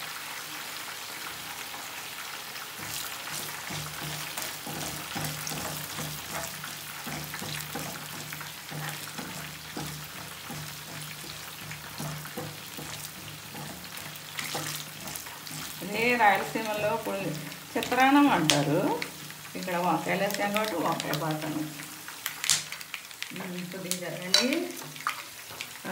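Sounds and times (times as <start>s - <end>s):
hot oil sizzling: 0.0s - 25.9s
spices crackling in hot oil: 0.0s - 25.9s.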